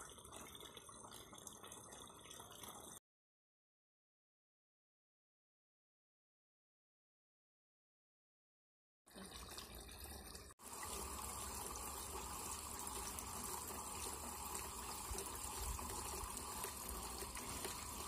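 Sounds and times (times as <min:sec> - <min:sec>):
water pouring and splashing: 0:00.0 - 0:03.0, 0:09.1 - 0:18.0.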